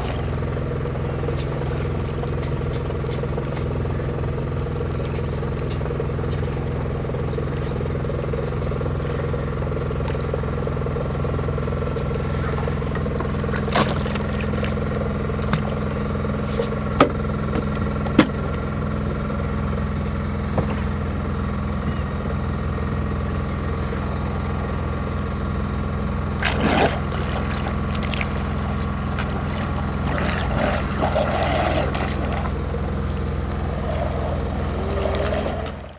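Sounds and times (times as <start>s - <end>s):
water splashing: 0.0s - 0.7s, 12.7s - 16.8s, 26.4s - 35.9s
boat engine drone: 0.0s - 35.9s.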